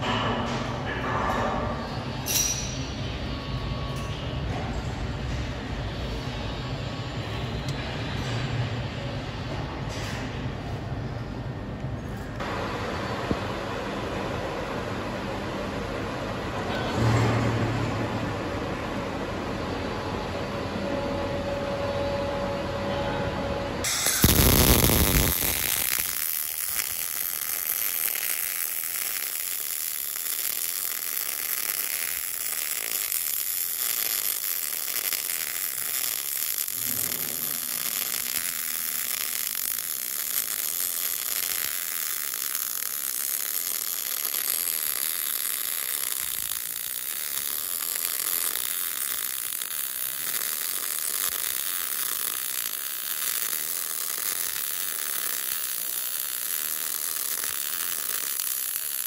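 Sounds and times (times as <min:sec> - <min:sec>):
welding arc crackling and sizzling: 0:23.8 - 0:59.0.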